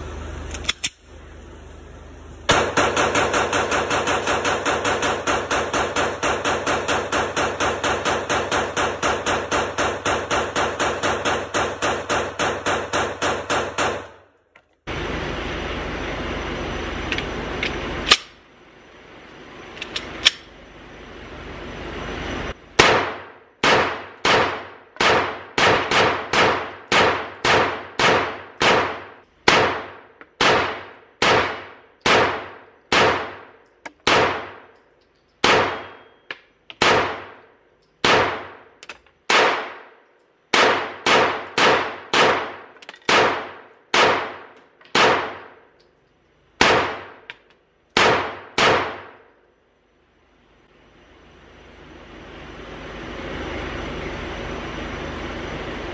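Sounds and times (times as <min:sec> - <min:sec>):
pistol shots echoing indoors: 0:02.5 - 0:14.2, 0:22.8 - 0:34.8, 0:35.4 - 0:38.7, 0:39.3 - 0:45.8, 0:46.6 - 0:47.3, 0:47.9 - 0:49.4.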